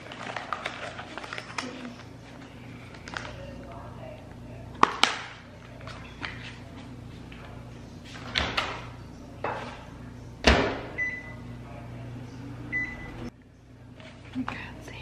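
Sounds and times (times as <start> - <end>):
microwave door banging shut: 10.4 - 11.0.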